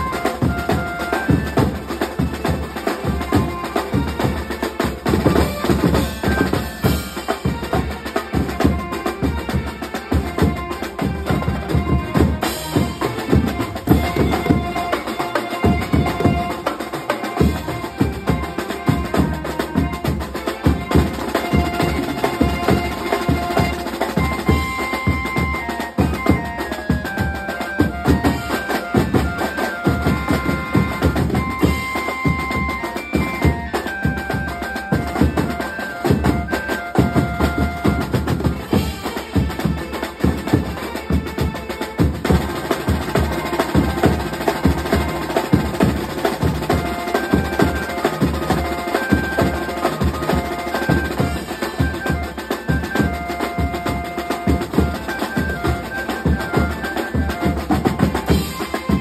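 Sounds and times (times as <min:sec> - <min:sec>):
deep drum beats: 0:00.0 - 0:16.7, 0:37.0 - 0:59.0
melody of held notes: 0:00.0 - 0:41.6, 0:42.4 - 0:59.0
fast drumming on toms and cymbals: 0:00.0 - 0:59.0.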